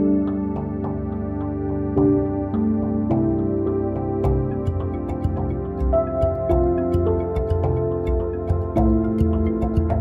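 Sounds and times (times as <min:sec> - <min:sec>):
soft ticking percussion: 0:04.2 - 0:10.0.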